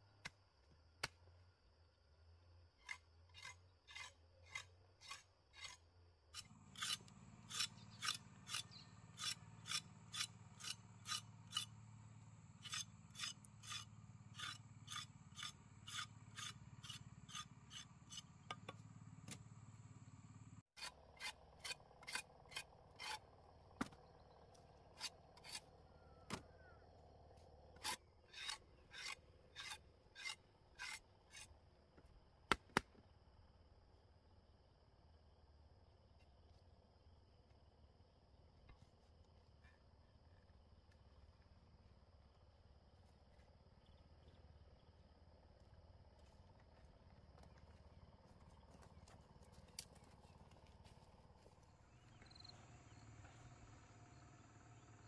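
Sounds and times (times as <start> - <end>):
knife scraping root skin: 6.4 - 11.7.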